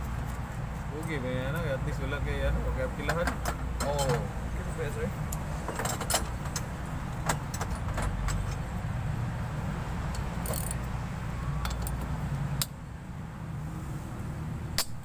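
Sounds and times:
vehicle engine humming: 0:00.0 - 0:14.8
hand tools clinking on metal: 0:03.0 - 0:04.3.

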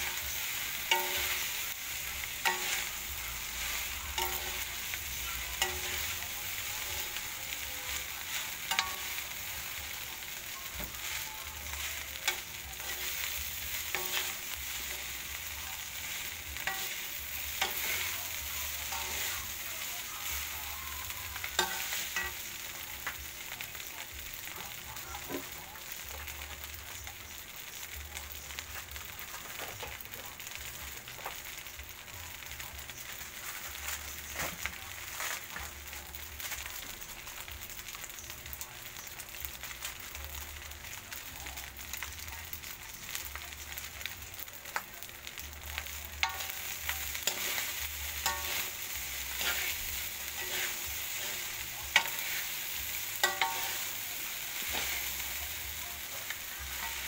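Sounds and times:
spatula scraping a wok: 0:00.0 - 0:23.2, 0:45.8 - 0:57.0
utensils clicking against pan: 0:00.0 - 0:23.8, 0:45.8 - 0:57.0
rice sizzling in a wok: 0:00.0 - 0:57.0.

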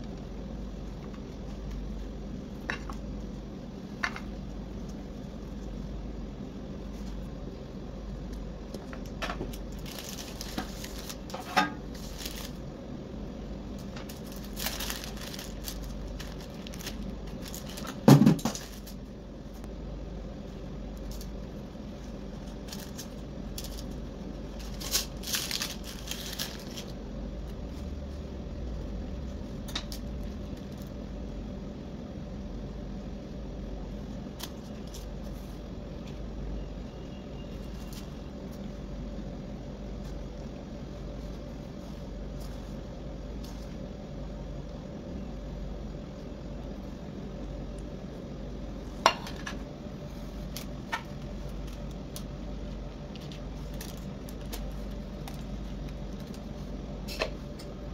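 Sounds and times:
steady low hum: 0:00.0 - 0:57.9
baking paper crinkling: 0:08.7 - 0:12.7, 0:13.7 - 0:19.1, 0:21.0 - 0:28.3, 0:50.1 - 0:56.8.

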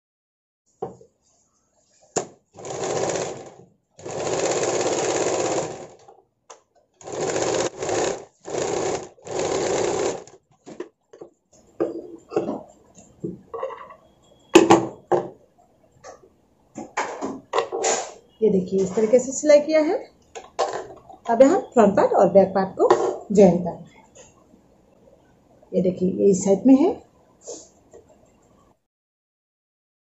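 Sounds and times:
sewing machine stitching: 0:02.6 - 0:06.1, 0:07.0 - 0:10.4.

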